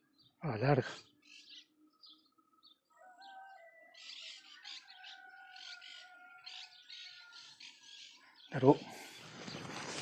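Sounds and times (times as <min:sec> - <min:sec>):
birds chirping: 0:00.0 - 0:10.0.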